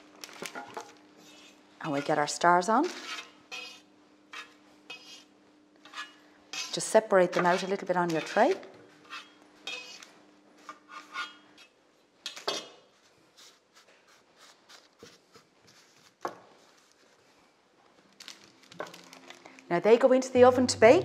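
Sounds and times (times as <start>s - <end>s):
dough scraping on baking tray: 1.2s - 11.4s.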